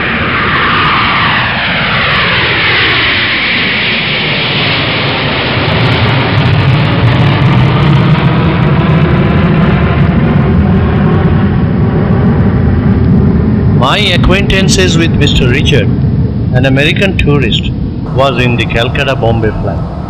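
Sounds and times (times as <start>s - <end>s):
jet airliner roar and whine: 0.0s - 20.0s
deep rumble: 4.9s - 20.0s.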